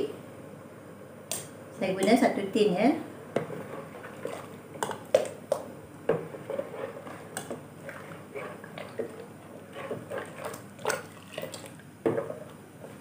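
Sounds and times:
metal ladle stirring broth: 6.1 - 12.5.

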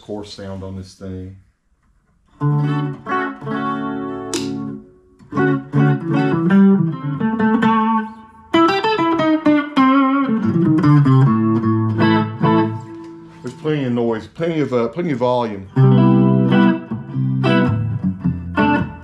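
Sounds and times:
electric guitar chords and runs: 2.3 - 13.4, 15.7 - 19.0.

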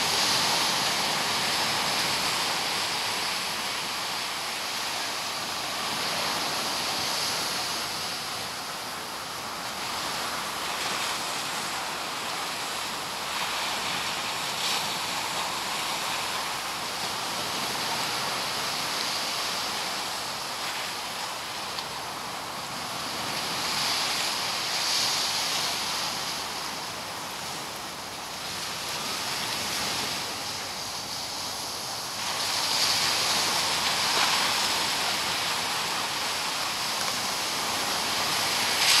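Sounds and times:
ocean surf breaking on beach: 0.0 - 39.0.

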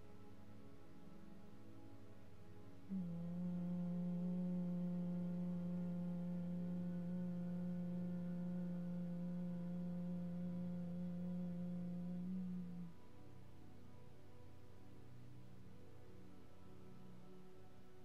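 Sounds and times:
soft background music: 0.0 - 18.0
woman humming low note: 2.9 - 13.0.

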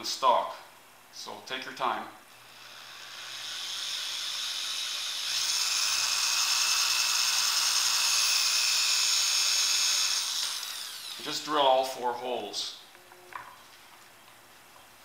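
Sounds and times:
electric drill motor whine: 2.4 - 11.3.

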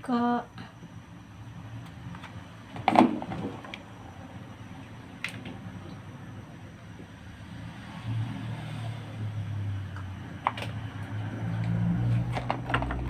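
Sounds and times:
low engine-like hum: 0.0 - 13.0.

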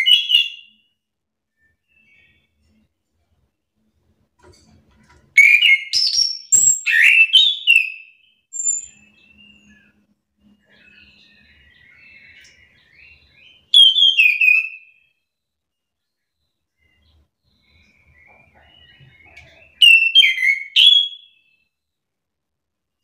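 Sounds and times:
thrush singing whistled notes: 0.0 - 0.9, 5.4 - 15.2, 16.8 - 21.8.

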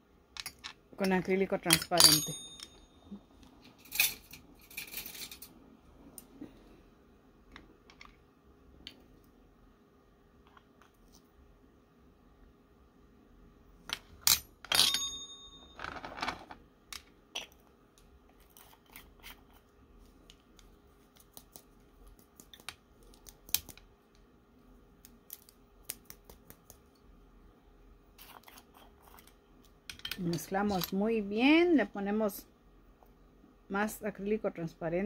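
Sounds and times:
metallic ring: 2.0 - 3.2, 14.3 - 16.0.

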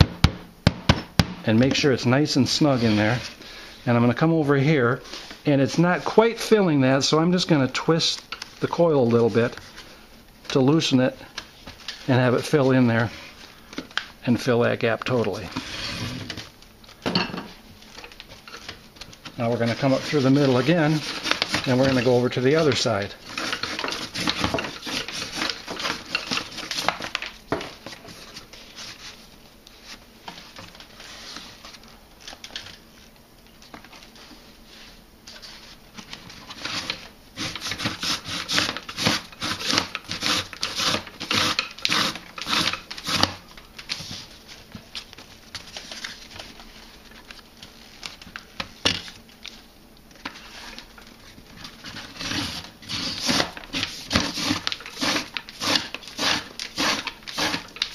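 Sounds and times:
paper cord rustling through weave: 17.8 - 57.9.

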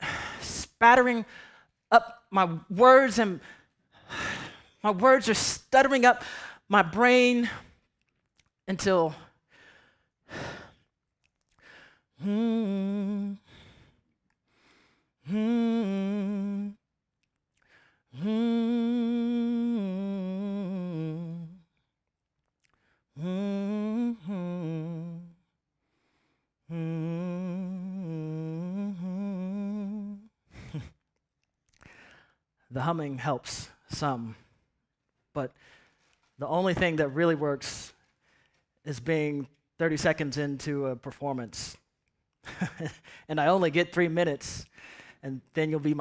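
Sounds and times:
man breathing: 9.4 - 12.2, 13.4 - 15.4, 25.8 - 26.8, 31.8 - 32.6, 43.0 - 43.3, 44.7 - 45.2
man humming a slow tune: 12.2 - 13.6, 15.2 - 16.8, 18.2 - 21.8, 23.2 - 25.5, 26.7 - 30.9.

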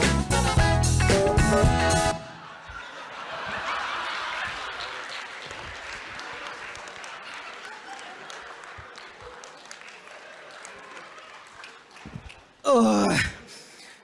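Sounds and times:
audience applauding: 2.8 - 12.7.

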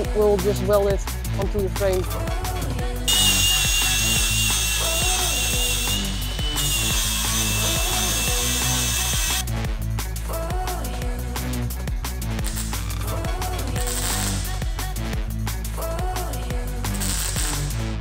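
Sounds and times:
background music: 0.0 - 18.0
angle grinder grinding steel: 3.1 - 9.5, 16.9 - 17.7.

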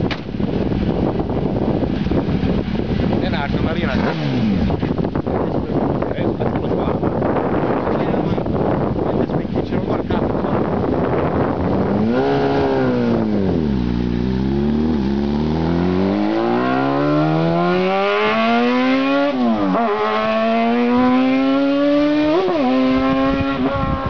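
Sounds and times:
race car engine accelerating: 11.0 - 24.0.

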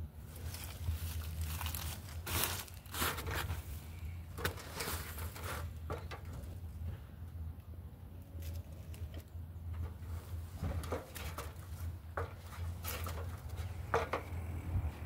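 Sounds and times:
low steady rumble: 0.0 - 15.0
rustling crinkling noise: 0.1 - 7.1, 8.2 - 14.4.

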